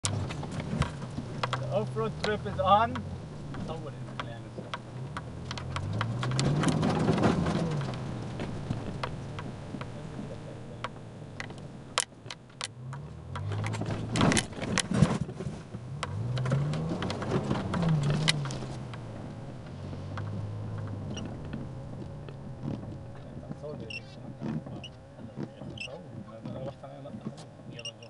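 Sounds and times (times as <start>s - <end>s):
car engine revving: 0.0s - 28.0s
knocks and rattles from bumpy ride: 0.0s - 28.0s.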